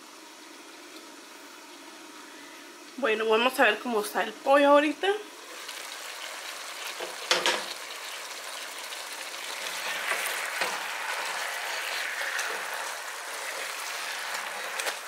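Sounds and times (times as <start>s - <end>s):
chicken sizzling in a pot: 4.8s - 15.0s.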